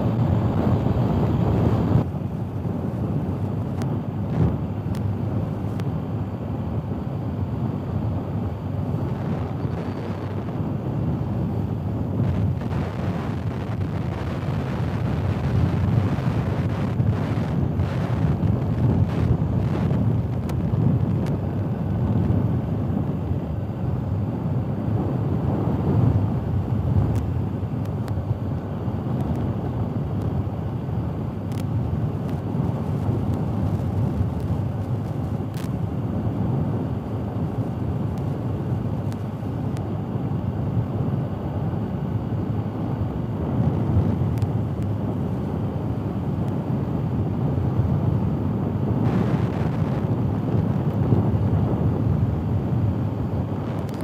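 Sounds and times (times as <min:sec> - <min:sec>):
wind and road rumble: 0:00.0 - 0:54.0.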